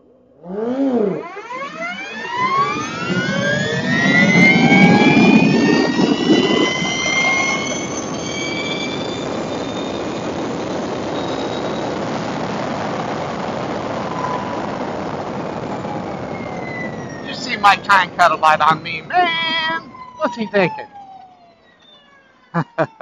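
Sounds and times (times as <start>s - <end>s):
electric motorcycle motor whine: 1.1s - 13.1s
tyre road noise: 3.0s - 22.4s
wind rushing: 3.7s - 20.0s.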